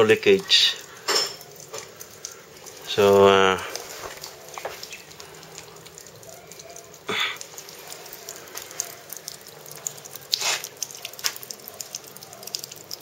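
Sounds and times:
water trickling and splashing: 0.0s - 13.0s.

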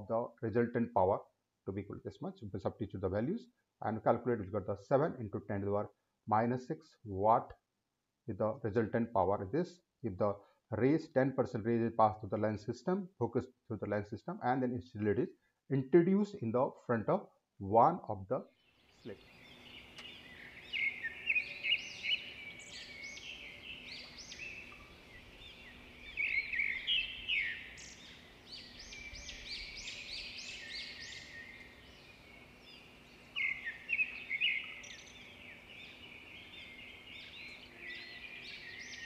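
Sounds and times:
small birds chirping: 18.5s - 39.0s.

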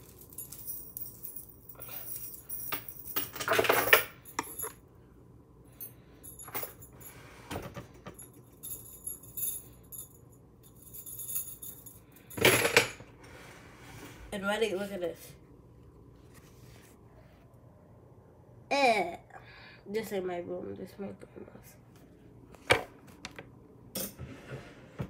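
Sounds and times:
metal chain necklaces jingling: 0.0s - 4.8s, 8.2s - 12.4s.

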